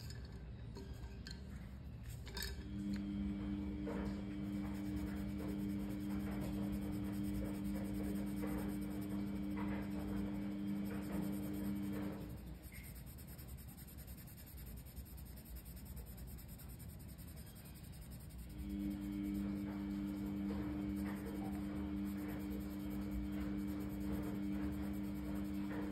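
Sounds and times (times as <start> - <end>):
low two-note hum: 2.6 - 12.8
pencil scratching on paper: 3.3 - 25.9.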